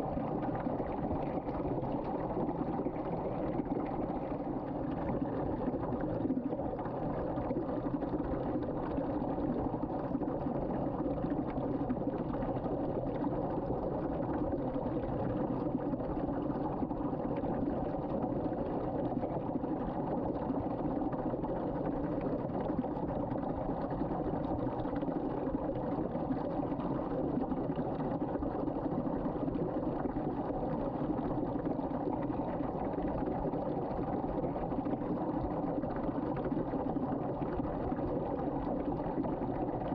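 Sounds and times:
water rushing down a drain: 0.0 - 39.9.

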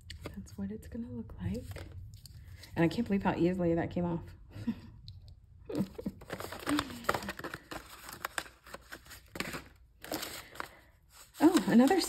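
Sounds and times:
cellophane and paper crinkling: 5.7 - 12.0.

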